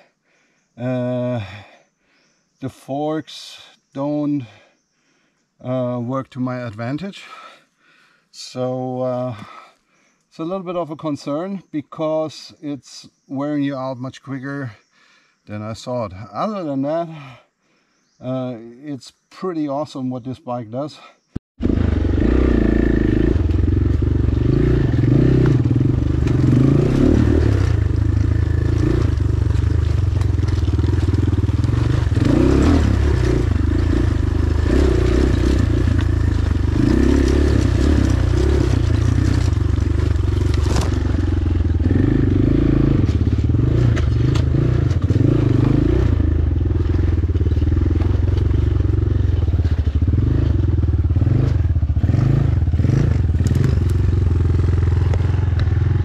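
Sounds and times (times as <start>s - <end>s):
dirt bike engine revving: 21.6s - 56.0s.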